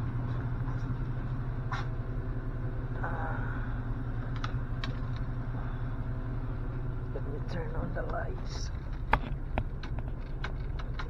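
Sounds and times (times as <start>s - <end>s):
car engine idling: 0.0s - 11.0s
sharp clicks and knocks: 8.0s - 11.0s.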